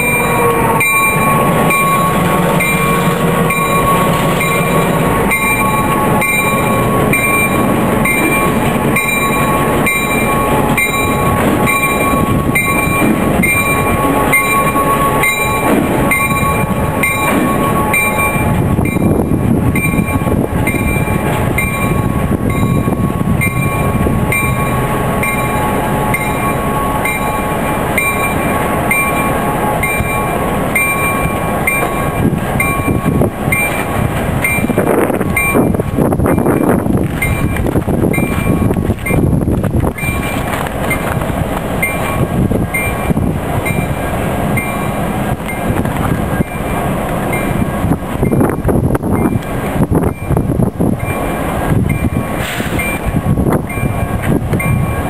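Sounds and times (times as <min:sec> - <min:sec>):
high ringing: 0:00.0 - 0:37.6
locomotive engine rumble: 0:00.0 - 0:55.0.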